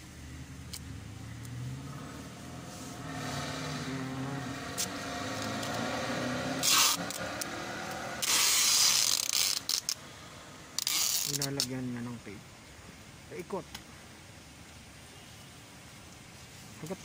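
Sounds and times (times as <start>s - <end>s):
vehicle engine running: 0.0s - 8.2s
short loud rasping noises: 2.7s - 7.5s, 8.2s - 9.9s.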